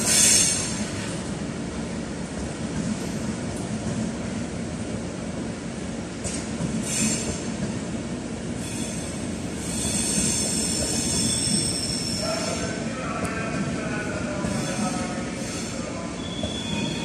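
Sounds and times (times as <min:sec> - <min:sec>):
train wheels squealing: 0:00.0 - 0:01.1, 0:06.8 - 0:07.5, 0:08.6 - 0:12.8, 0:14.4 - 0:17.0
rumble of rolling coaches: 0:00.0 - 0:17.0.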